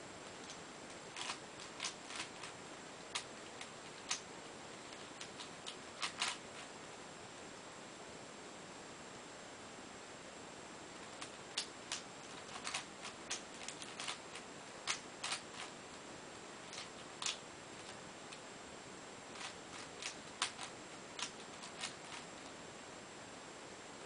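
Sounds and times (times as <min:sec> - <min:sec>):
steady hiss: 0:00.0 - 0:24.0
puzzle cube plastic clicking: 0:00.3 - 0:04.3, 0:04.9 - 0:06.7, 0:11.0 - 0:15.8, 0:16.7 - 0:18.4, 0:19.3 - 0:22.5.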